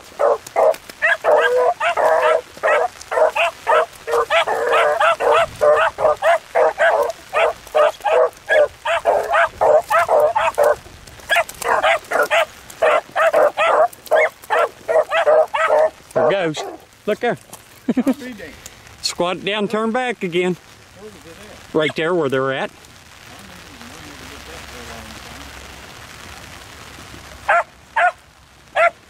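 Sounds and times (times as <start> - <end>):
dogs baying: 0.0 - 16.9, 28.8 - 29.0.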